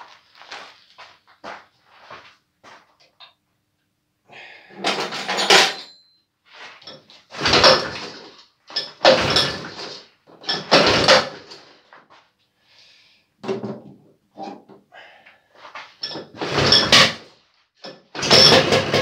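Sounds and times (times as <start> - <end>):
engine cranking over: 7.3 - 8.3, 9.0 - 10.0, 10.6 - 11.6, 18.2 - 19.0.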